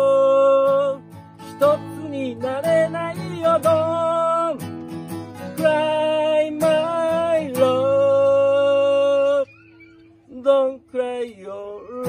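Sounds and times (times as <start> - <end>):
man singing a slow ballad: 0.0 - 4.6, 5.4 - 9.6, 10.3 - 12.0
strummed acoustic guitar: 0.0 - 12.0.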